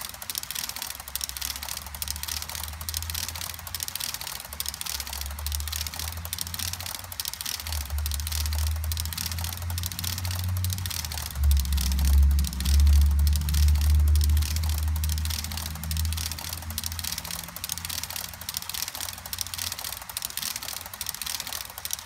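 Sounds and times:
model train wheels clattering: 0:00.0 - 0:22.0
low hum: 0:04.7 - 0:19.8.

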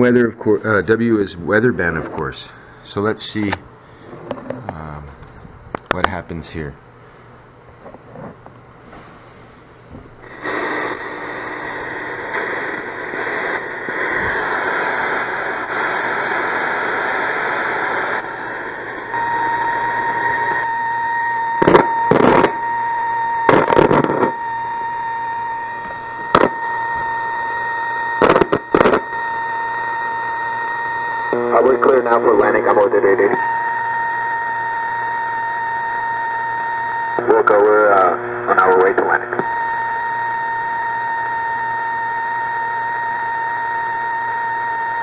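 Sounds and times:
radio static hiss: 0:00.0 - 0:05.2, 0:07.8 - 0:45.0
steady high whistle: 0:19.1 - 0:23.6, 0:24.2 - 0:37.8, 0:39.4 - 0:45.0.

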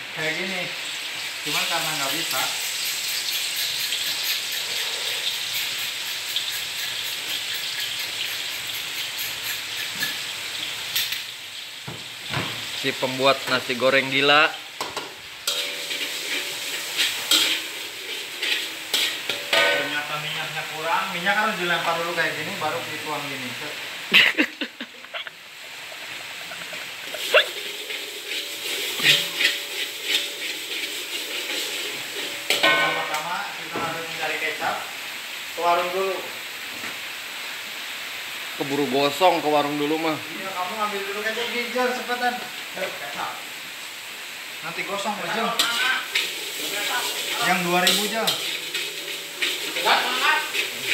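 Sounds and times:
food crackling in hot oil: 0:00.0 - 0:50.9
sharp ticks: 0:05.5 - 0:10.1.

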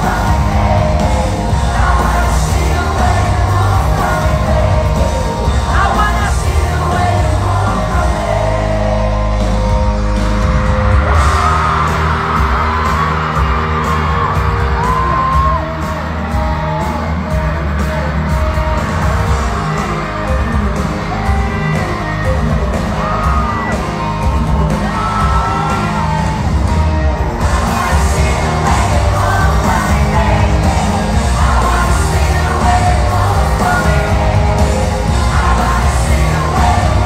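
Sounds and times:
person singing: 0:00.0 - 0:09.9, 0:27.4 - 0:37.0
fans yelling and cheering: 0:00.0 - 0:37.0
live pop-rock band: 0:00.0 - 0:37.0.

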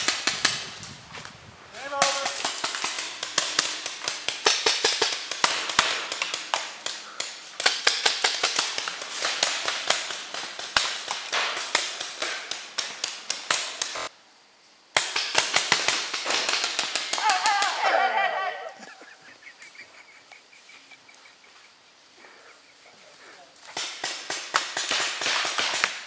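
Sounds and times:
paintball guns firing: 0:00.0 - 0:00.7, 0:01.8 - 0:14.1, 0:15.0 - 0:17.8, 0:23.7 - 0:26.0.

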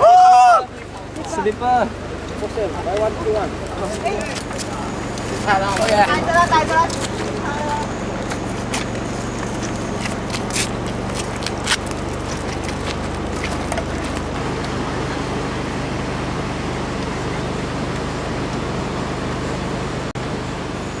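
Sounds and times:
constant rushing noise: 0:00.0 - 0:21.0
diesel train engine idling: 0:00.0 - 0:21.0
footsteps on gravel: 0:03.6 - 0:14.8.

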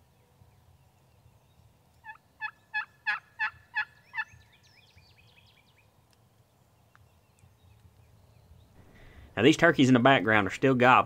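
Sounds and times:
turkey hen yelping: 0:02.0 - 0:04.3.

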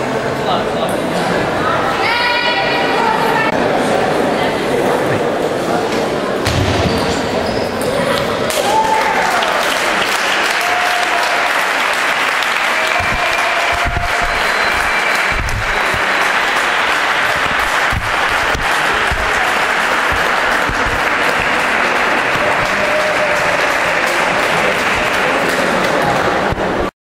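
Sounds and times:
spectators applauding: 0:08.5 - 0:26.9.

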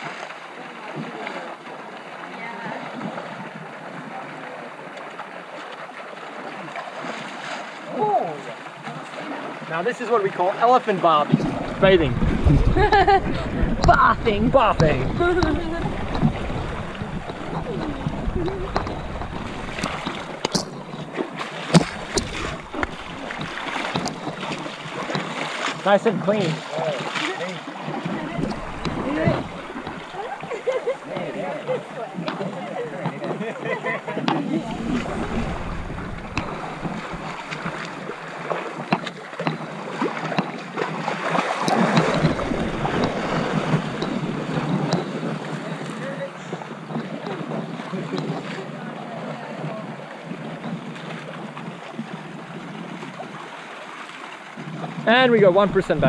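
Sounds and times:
sharp splashes: 0:00.0 - 0:32.7, 0:34.3 - 0:46.7
water splashing and sloshing: 0:00.0 - 0:56.0.

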